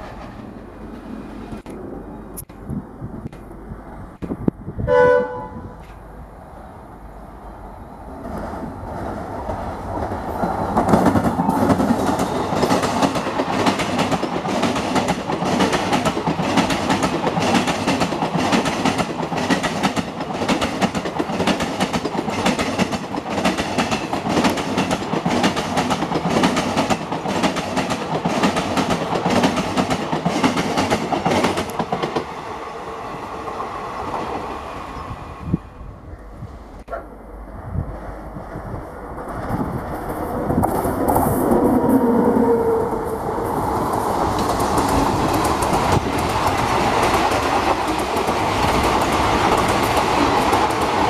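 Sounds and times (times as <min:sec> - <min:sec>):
train wheels clattering over rail joints: 0:09.4 - 0:32.3.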